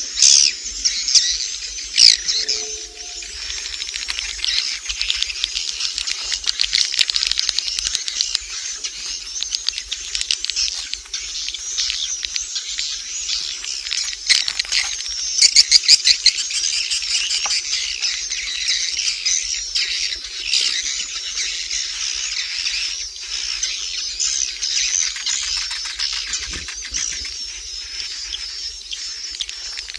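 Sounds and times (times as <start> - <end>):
birds twittering and chirping: 0.0 - 29.9
rapid bird clicks: 3.6 - 15.1, 29.3 - 29.9.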